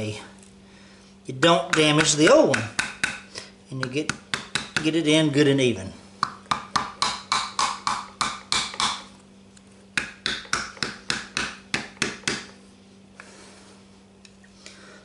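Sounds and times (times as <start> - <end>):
hammer tapping on metal seal: 3.8 - 4.9.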